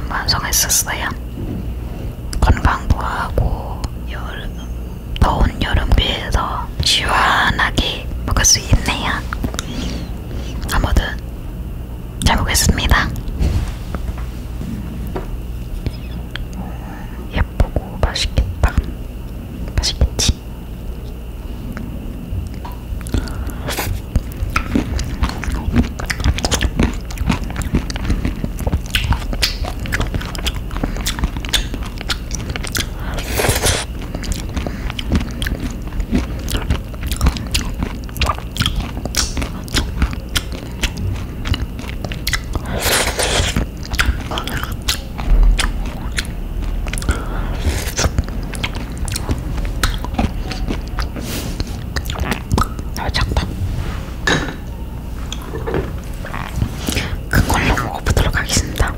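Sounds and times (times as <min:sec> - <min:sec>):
person chewing crunchy food: 0:08.3 - 0:11.2, 0:21.1 - 0:53.6, 0:55.2 - 0:58.9.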